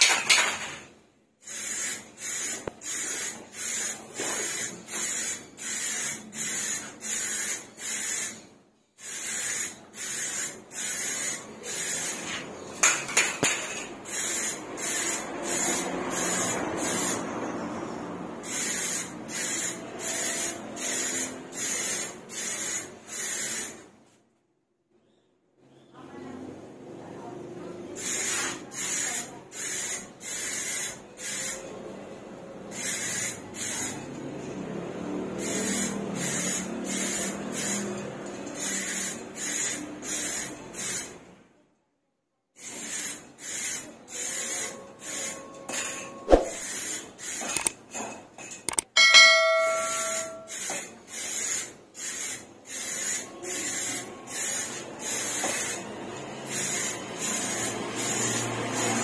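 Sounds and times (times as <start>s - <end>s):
ringing tone: 49.0s - 50.5s.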